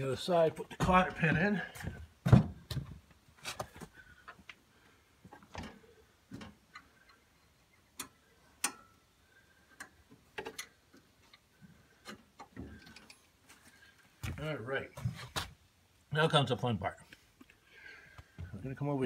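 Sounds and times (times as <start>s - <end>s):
metal hardware clicks and taps: 7.9s - 9.0s, 9.8s - 13.2s.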